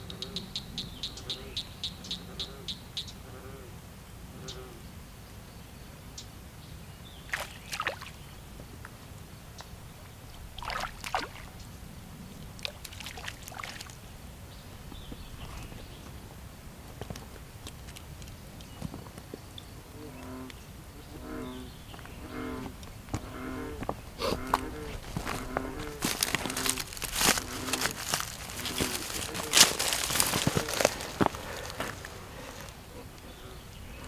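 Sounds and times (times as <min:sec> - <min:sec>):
fish splashing in water: 0:07.3 - 0:08.2, 0:10.6 - 0:11.6, 0:12.6 - 0:14.0.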